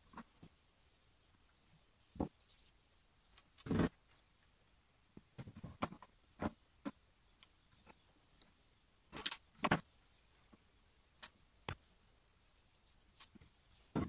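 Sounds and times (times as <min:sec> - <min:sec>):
small metal fittings clinking: 0:09.1 - 0:09.4.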